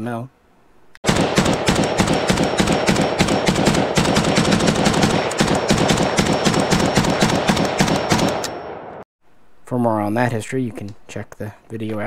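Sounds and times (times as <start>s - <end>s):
rifle firing rapid shots: 1.0s - 9.0s.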